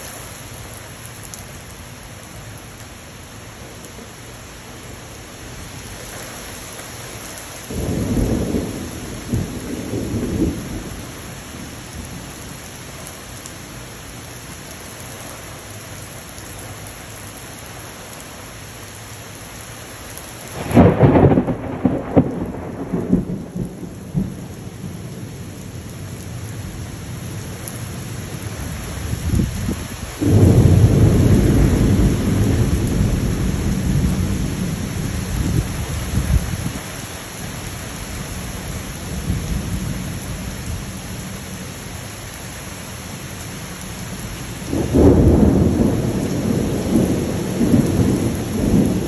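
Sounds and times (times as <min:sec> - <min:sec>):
heavy rain falling: 0:00.0 - 0:49.0
thunder: 0:07.7 - 0:12.2, 0:20.6 - 0:25.1, 0:29.2 - 0:36.7, 0:44.7 - 0:49.0.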